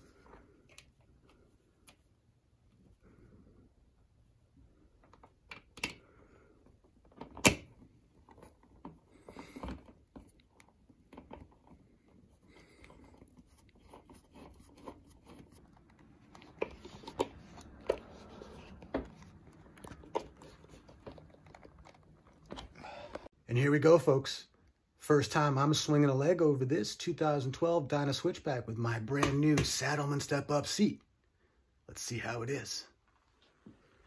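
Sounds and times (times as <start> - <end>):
hands handling objects: 4.9 - 23.3.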